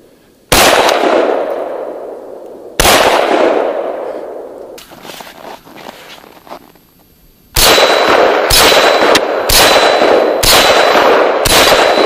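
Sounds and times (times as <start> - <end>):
rifle shots echoing: 0.5 - 4.8, 7.6 - 12.0.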